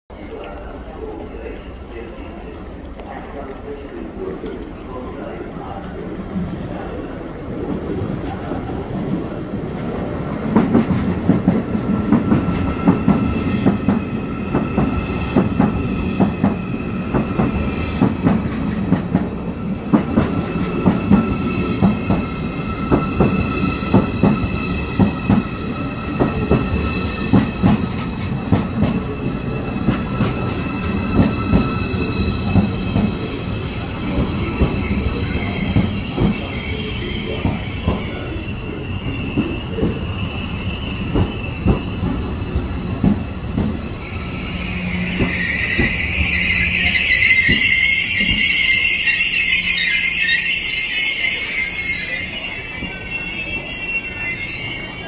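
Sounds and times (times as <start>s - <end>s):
train rumble: 0.3s - 49.6s
high-pitched brake squeal: 21.0s - 27.7s, 29.0s - 33.0s, 34.4s - 55.0s.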